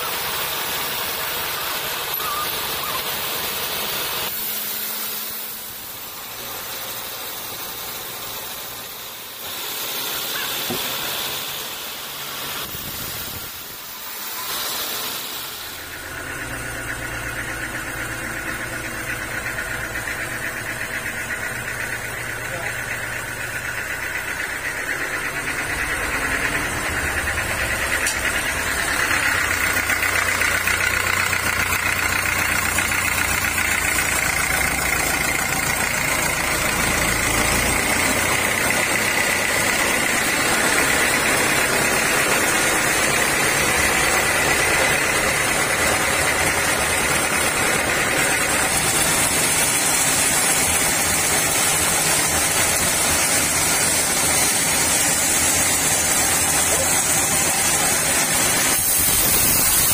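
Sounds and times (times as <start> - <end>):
band saw whine: 0.0 - 59.9.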